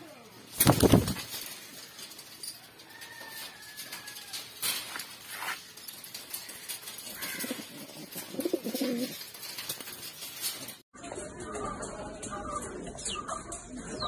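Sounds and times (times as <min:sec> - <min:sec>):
sharp clicks and rustles: 0:00.3 - 0:10.8
pigeons cooing: 0:06.2 - 0:10.7.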